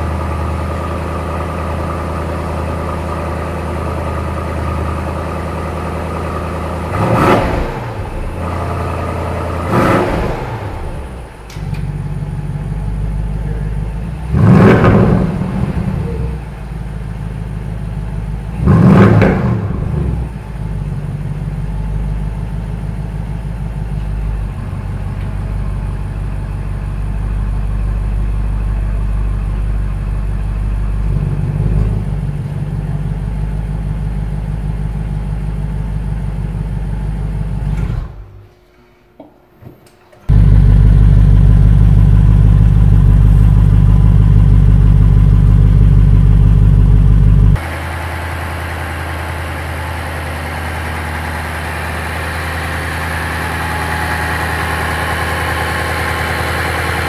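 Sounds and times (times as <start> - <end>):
car engine idling: 0.0 - 38.6, 40.3 - 57.0
engine restarting with loud flare: 1.7 - 12.2, 13.0 - 16.5, 18.5 - 20.9, 29.8 - 38.5, 40.3 - 57.0.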